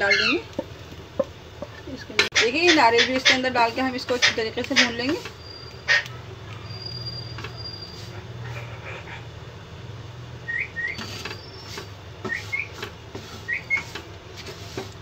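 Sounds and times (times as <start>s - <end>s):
wooden spatula scraping a pan: 2.5s - 5.4s, 11.0s - 15.0s.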